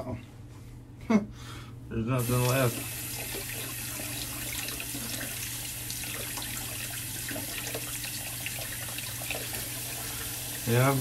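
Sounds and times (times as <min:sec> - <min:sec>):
tap water running into sink: 0:02.2 - 0:11.0.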